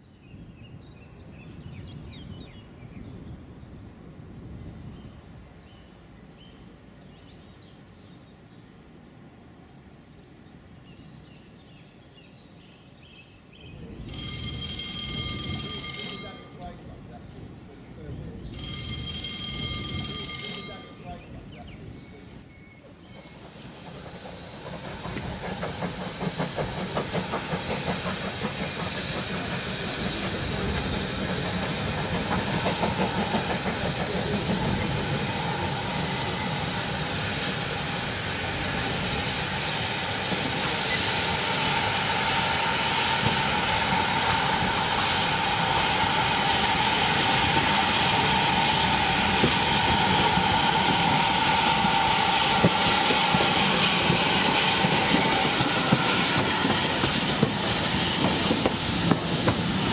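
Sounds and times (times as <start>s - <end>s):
steam locomotive exhaust beats: 22.9s - 59.9s
train wheels clicking: 23.2s - 59.9s
steam hiss with high tone: 23.3s - 59.9s.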